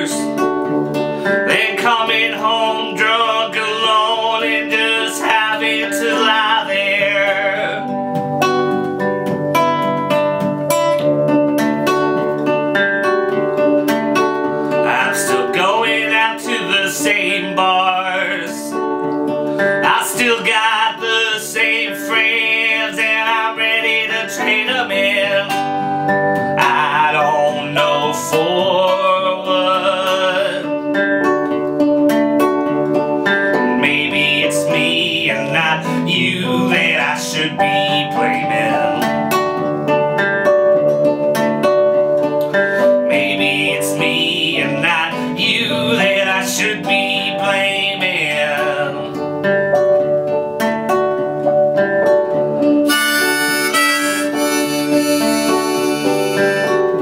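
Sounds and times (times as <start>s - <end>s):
nylon-string guitar: 0.0s - 57.0s
upright piano: 0.0s - 57.0s
harmonica: 52.8s - 57.0s.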